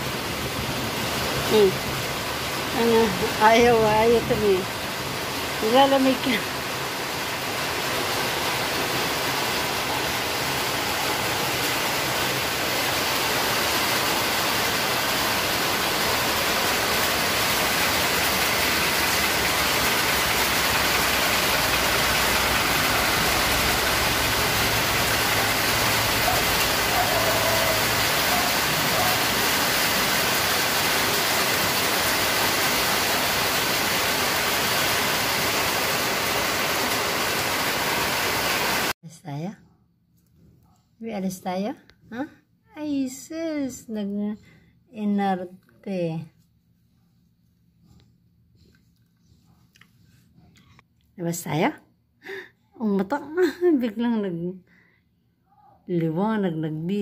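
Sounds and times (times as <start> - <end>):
rain falling: 0.0 - 39.0
vehicle engine running: 17.5 - 27.0.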